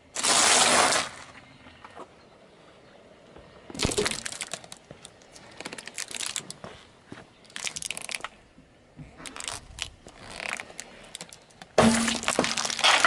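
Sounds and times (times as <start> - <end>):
crackling with sharp cracks: 3.8 - 6.6, 7.4 - 8.4, 9.2 - 13.0
tyre crunching chips: 3.8 - 6.6, 7.5 - 8.3, 9.2 - 13.0.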